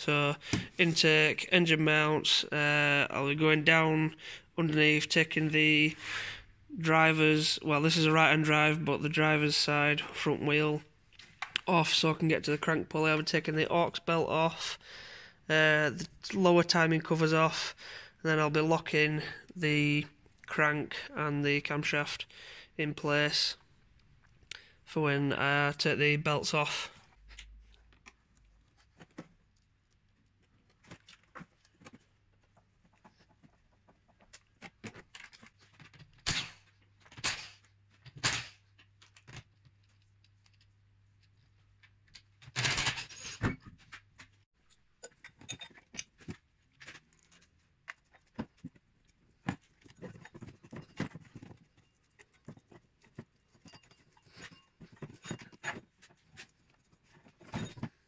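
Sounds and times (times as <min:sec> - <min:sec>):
tools and parts rattling: 0:30.7 - 0:40.7, 0:41.3 - 0:58.0.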